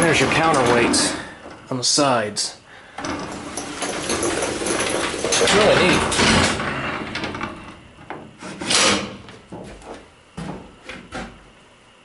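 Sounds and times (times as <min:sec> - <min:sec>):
metal elevator door sliding shut: 0:00.0 - 0:01.3, 0:03.0 - 0:07.7
metal door clatter: 0:03.0 - 0:07.6.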